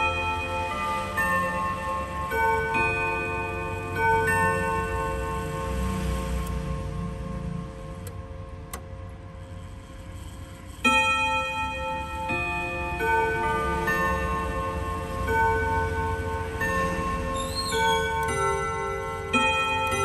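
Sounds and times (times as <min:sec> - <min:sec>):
chime clock hammers striking gong rods: 0:00.0 - 0:07.7, 0:10.7 - 0:20.0.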